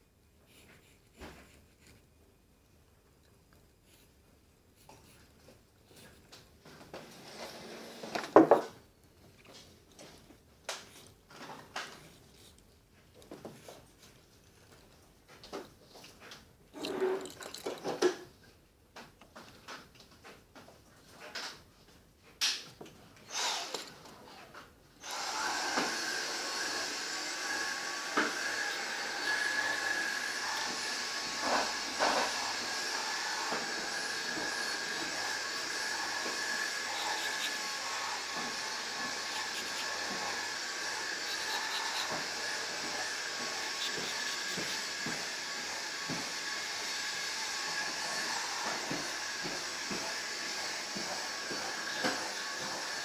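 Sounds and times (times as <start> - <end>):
machine-like hiss with high whine: 25.1 - 53.0
pencil scratching on paper: 25.9 - 45.1.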